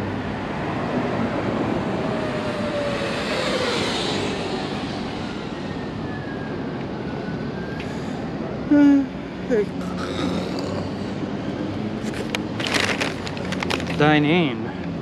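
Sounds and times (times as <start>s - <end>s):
vehicle passing: 0.0s - 7.4s.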